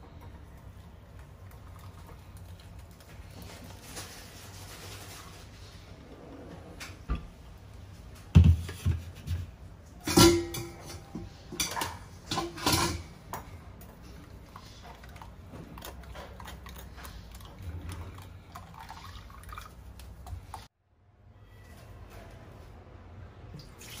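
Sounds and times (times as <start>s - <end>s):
pots and utensils clanking: 8.4s - 19.1s.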